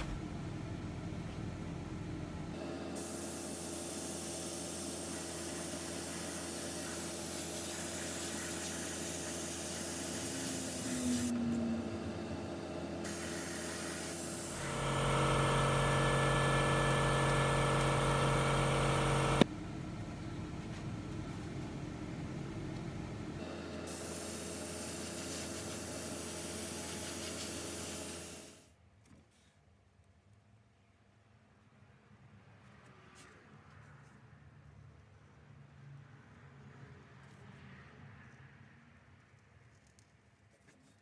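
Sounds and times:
air compressor motor humming: 0:02.5 - 0:19.5, 0:23.4 - 0:28.6
airbrush spraying hiss: 0:03.0 - 0:11.3, 0:13.0 - 0:14.6, 0:23.9 - 0:28.6.

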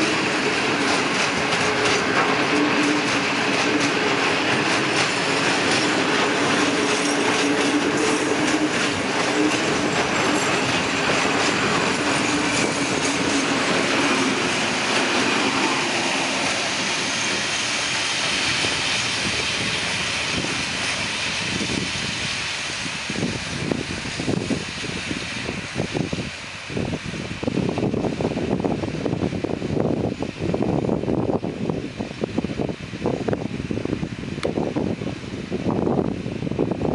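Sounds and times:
freight train wheels clattering: 0:00.0 - 0:29.2.

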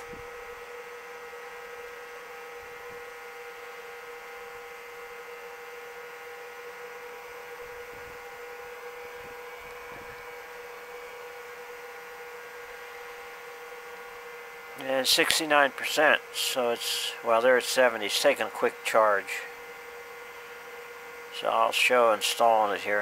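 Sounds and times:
battery charger humming: 0:00.0 - 0:23.0.

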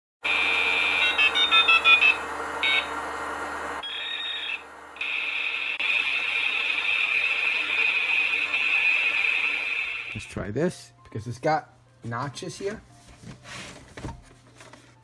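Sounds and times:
high-pitched electronic tone: 0:00.2 - 0:03.0, 0:03.8 - 0:10.3.

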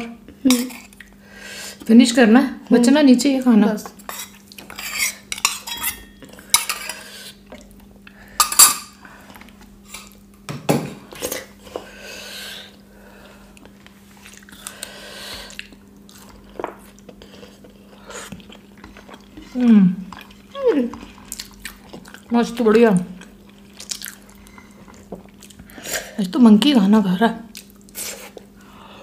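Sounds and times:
utensils clinking against plates: 0:04.1 - 0:07.0
food squishing: 0:13.5 - 0:25.8.

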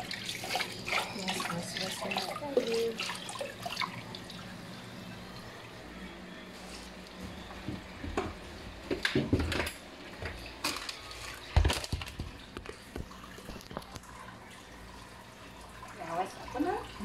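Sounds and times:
kitchen items clattering: 0:07.6 - 0:14.0.

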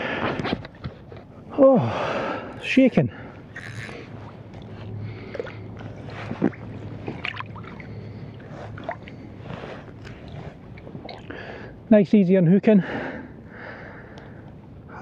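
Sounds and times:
shallow water sloshing and splashing: 0:03.0 - 0:11.6.

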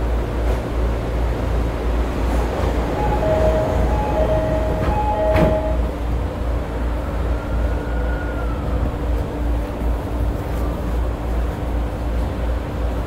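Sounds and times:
electric train whine: 0:00.0 - 0:13.0
sliding doors shutting with knock: 0:03.4 - 0:05.8.

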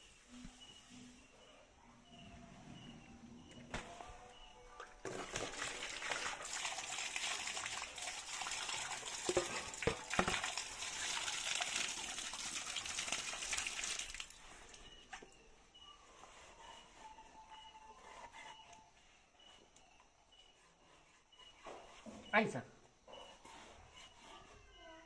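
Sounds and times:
tap water gushing onto floor: 0:05.0 - 0:14.8.

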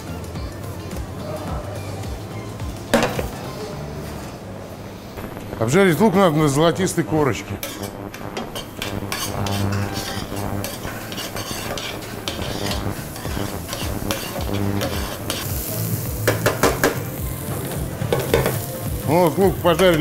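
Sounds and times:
onions sizzling in pan: 0:05.2 - 0:20.0
metal spoon scraping pan: 0:08.6 - 0:15.5.

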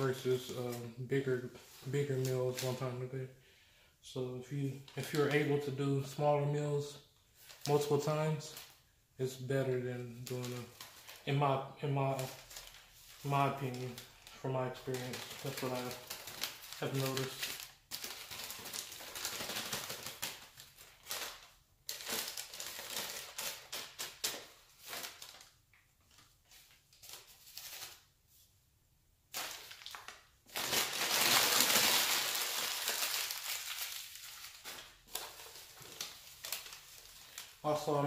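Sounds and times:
newspaper rustling and crinkling: 0:01.5 - 0:03.0, 0:10.0 - 0:11.4, 0:12.0 - 0:28.5, 0:29.3 - 0:38.0.

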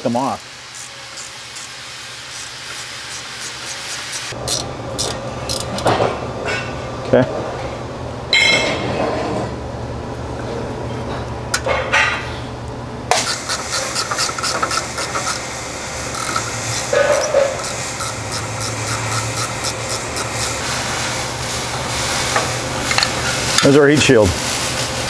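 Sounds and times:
ratchet wrench clicking: 0:00.8 - 0:05.8, 0:13.2 - 0:15.4, 0:16.1 - 0:20.6
steady low hum: 0:04.3 - 0:25.0.

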